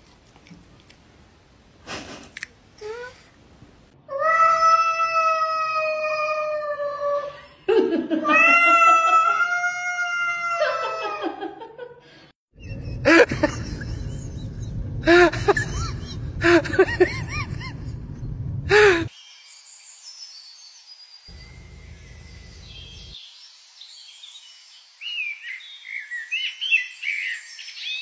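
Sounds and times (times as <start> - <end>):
cat meowing: 8.3 - 10.6
low rumble: 12.6 - 19.1.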